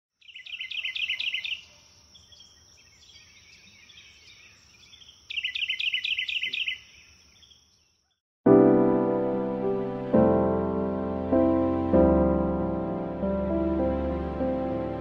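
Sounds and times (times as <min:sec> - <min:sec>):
songbird chirping: 0:00.1 - 0:08.2
faint bird calls: 0:00.3 - 0:08.2.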